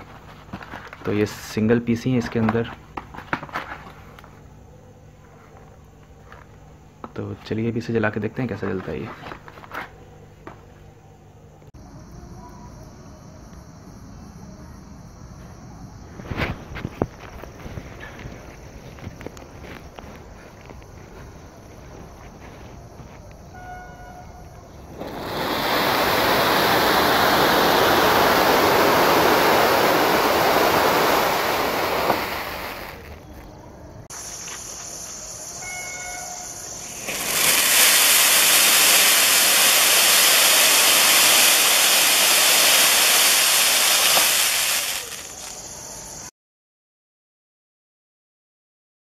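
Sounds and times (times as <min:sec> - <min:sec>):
ground firework hissing: 0:24.4 - 0:46.3.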